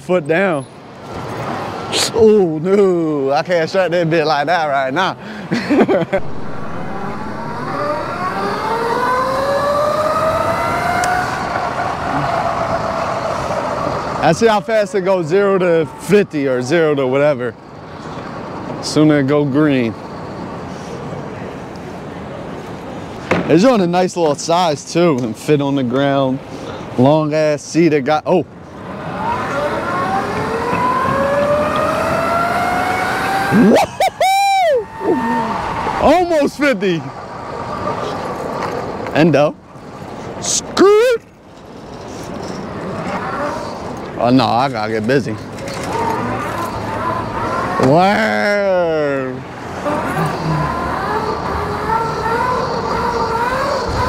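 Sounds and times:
wind and road noise: 0.0 - 54.0
electric motor whine: 6.2 - 10.3
loud shout: 33.5 - 36.3.

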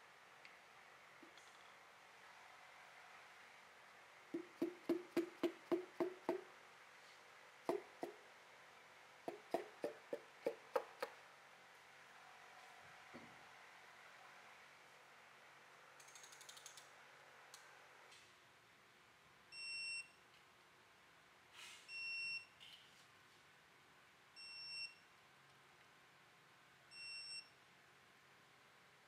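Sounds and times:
ratchet clicks: 16.0 - 16.9.

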